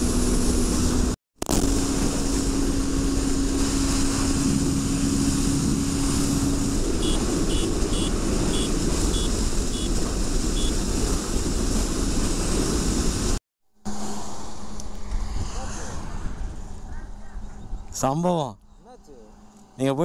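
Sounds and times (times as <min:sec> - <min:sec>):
motorcycle riding at speed: 0:00.0 - 0:18.0
wind rush over microphone: 0:00.0 - 0:18.1
short high beeps: 0:07.0 - 0:09.9.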